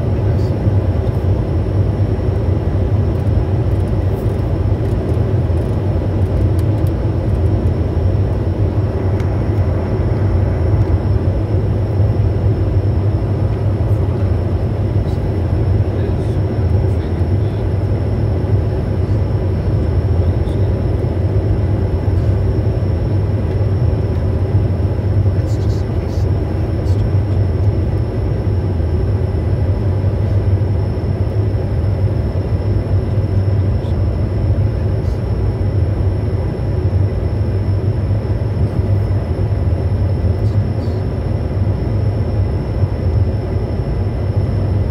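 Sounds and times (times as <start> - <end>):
faint high engine whine: 0.0 - 44.9
jet cockpit rumble: 0.0 - 44.9.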